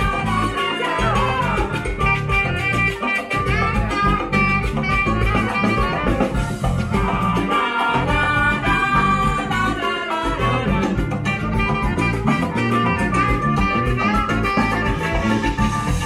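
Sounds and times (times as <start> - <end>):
live band playing salsa: 0.0 - 16.0.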